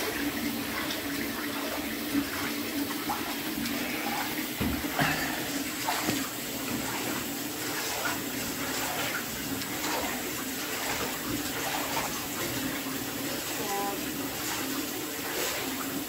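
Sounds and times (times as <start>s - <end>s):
bath tap running into tub: 0.0s - 16.0s
hand swishing through water: 5.0s - 7.1s.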